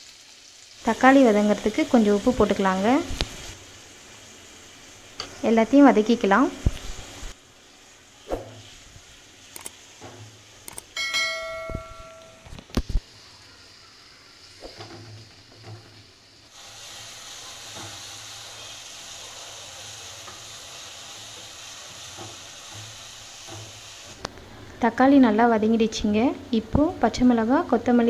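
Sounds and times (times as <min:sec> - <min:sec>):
vegetables sizzling in oil: 0:00.0 - 0:11.1, 0:12.1 - 0:28.0
metallic clang: 0:11.0 - 0:12.5.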